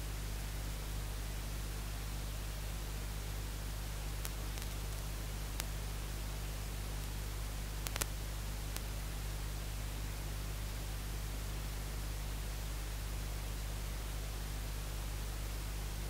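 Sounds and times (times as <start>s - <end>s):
steady hiss: 3.3s - 9.5s
faint clicks: 4.2s - 5.8s, 7.8s - 8.9s.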